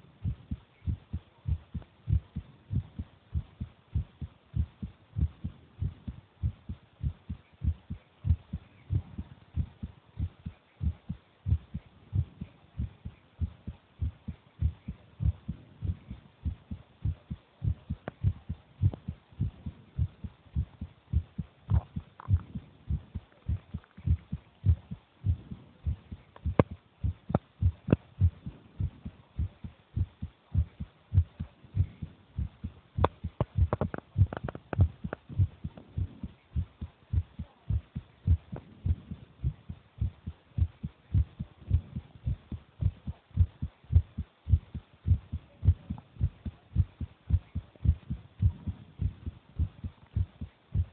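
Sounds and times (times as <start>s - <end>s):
heartbeat thumps: 0.0s - 50.9s
sharp clicks: 33.0s - 35.9s.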